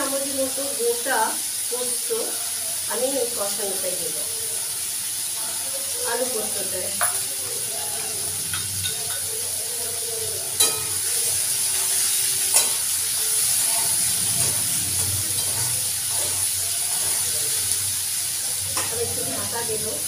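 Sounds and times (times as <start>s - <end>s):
potatoes and onion sizzling: 0.0s - 20.0s
metal spatula scraping pan: 10.5s - 17.8s.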